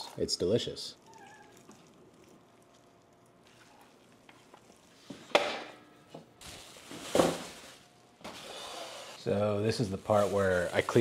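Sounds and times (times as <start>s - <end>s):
soft handling of food: 1.0s - 5.1s.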